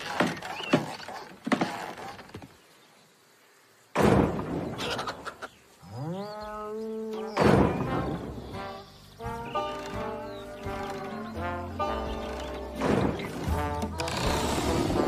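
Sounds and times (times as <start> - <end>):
loud rustling burst: 12.2 - 15.0.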